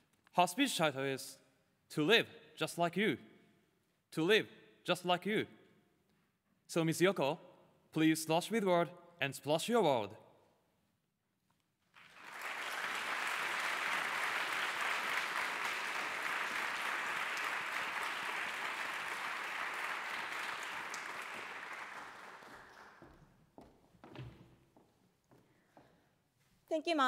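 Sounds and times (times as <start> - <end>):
audience applauding: 11.9 - 23.3.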